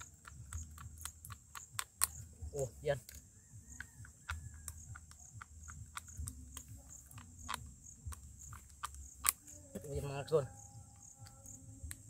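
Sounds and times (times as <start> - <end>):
insects trilling: 0.0 - 12.0
plastic strips snapping: 3.8 - 9.9.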